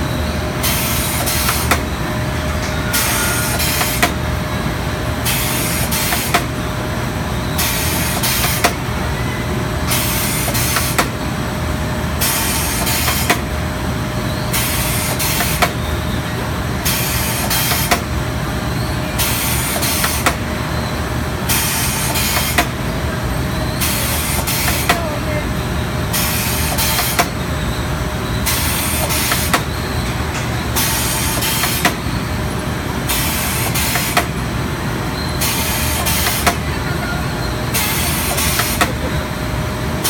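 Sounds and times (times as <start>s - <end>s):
machine humming: 0.0s - 8.2s
machine hissing: 0.6s - 4.3s, 35.3s - 40.0s.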